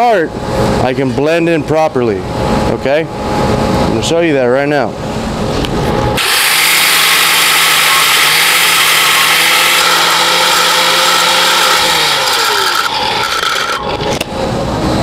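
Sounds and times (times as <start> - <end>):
angle grinder grinding steel: 6.2 - 14.2.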